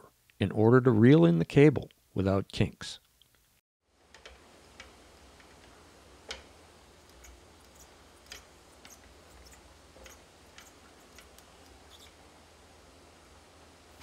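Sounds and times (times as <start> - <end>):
cable reel clicking and knocking: 4.1 - 12.2.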